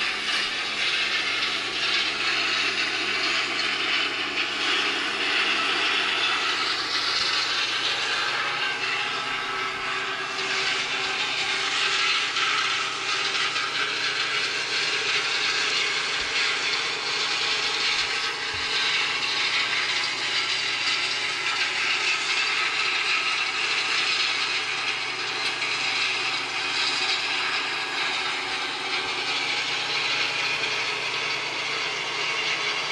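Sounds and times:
combine harvester running: 0.0s - 32.9s.

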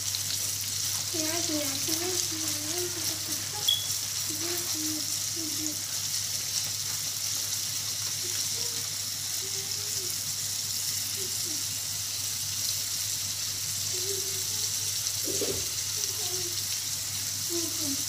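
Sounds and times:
food sizzling in hot oil: 0.0s - 18.0s.

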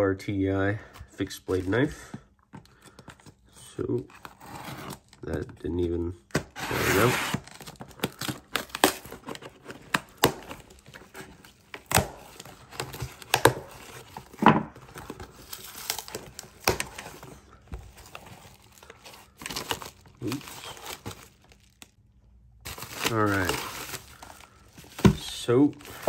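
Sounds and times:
cardboard and plastic crinkling: 7.0s - 22.0s, 22.6s - 26.0s
packing tape tearing: 22.7s - 26.0s.

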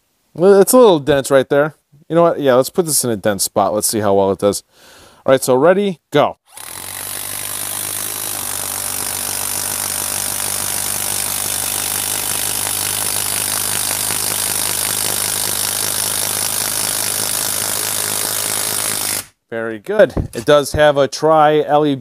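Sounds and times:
impact driver hammering screw into wood: 6.5s - 19.4s.

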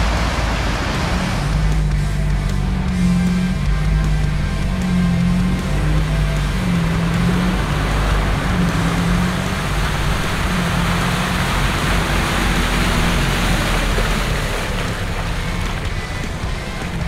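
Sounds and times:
suv engine running: 0.0s - 17.0s
tyres splashing through mud: 0.0s - 17.0s.

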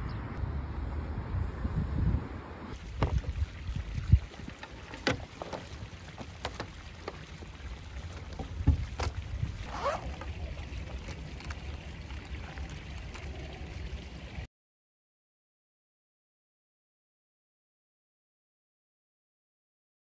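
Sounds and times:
wind buffeting microphone: 0.0s - 6.0s, 8.2s - 14.4s
traffic low rumble: 0.0s - 14.5s.

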